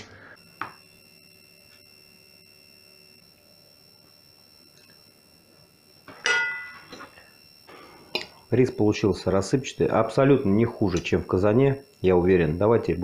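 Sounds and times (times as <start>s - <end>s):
tableware clinking on a plate: 6.1s - 7.1s.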